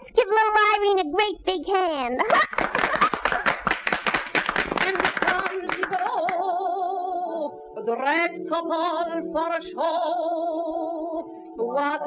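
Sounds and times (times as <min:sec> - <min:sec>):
musical accompaniment: 0:02.7 - 0:12.0
woman singing with vibrato: 0:04.7 - 0:12.0.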